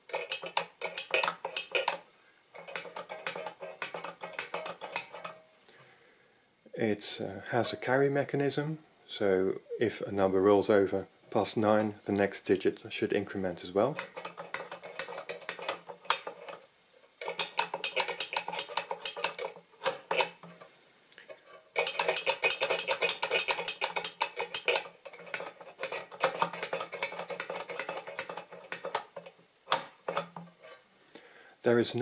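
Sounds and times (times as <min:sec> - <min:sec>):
toy adding machine clicking: 0:00.0 - 0:02.0, 0:02.6 - 0:05.4, 0:14.0 - 0:16.6, 0:17.2 - 0:20.4, 0:21.8 - 0:30.4.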